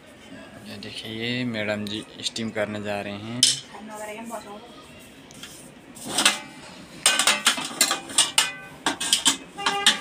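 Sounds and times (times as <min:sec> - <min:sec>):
metal pots clanking: 0:06.1 - 0:10.0.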